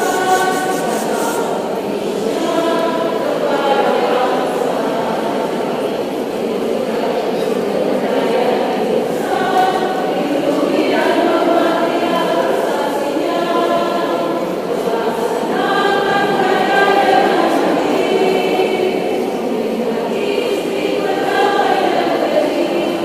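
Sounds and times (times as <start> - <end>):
women's choir singing: 0.0 - 23.0.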